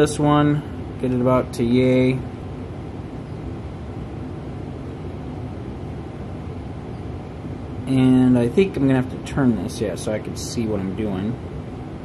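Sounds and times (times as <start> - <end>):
man speaking: 0.0 - 2.3, 7.9 - 11.4
low room hum: 0.0 - 12.0.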